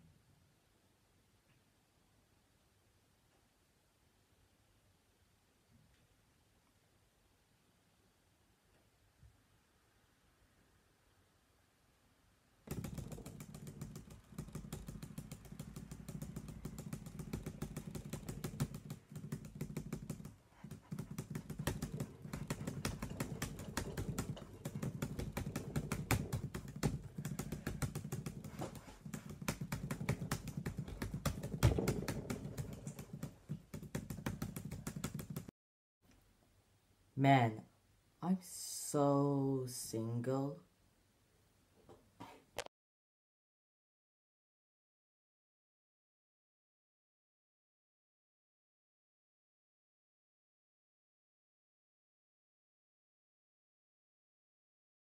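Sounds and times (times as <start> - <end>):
rapid laptop keyboard tapping: 12.7 - 35.5.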